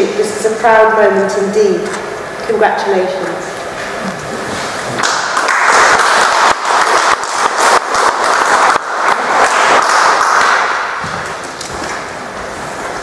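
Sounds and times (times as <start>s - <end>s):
audience applauding: 5.0s - 11.7s.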